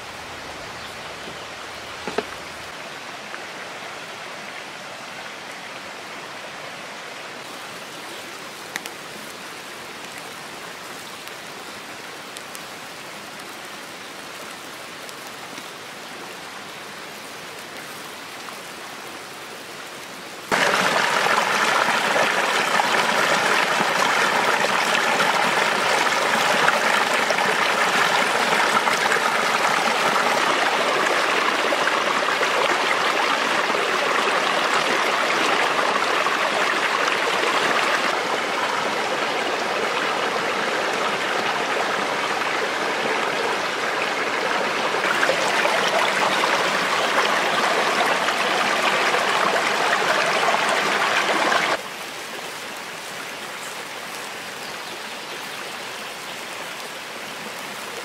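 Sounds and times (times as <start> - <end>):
water rushing over rocks: 20.5 - 52.6.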